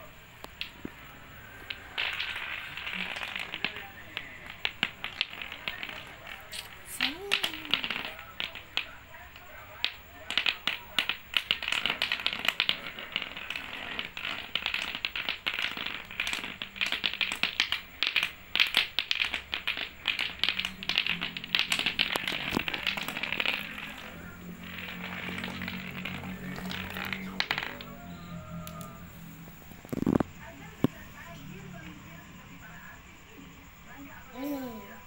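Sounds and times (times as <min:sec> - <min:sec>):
clacker toy balls clacking: 0:00.4 - 0:01.0, 0:01.6 - 0:29.1.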